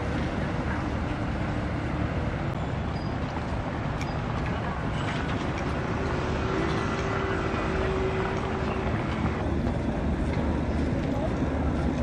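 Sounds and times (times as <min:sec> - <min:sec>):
ferry engine rumble: 0:00.0 - 0:12.0.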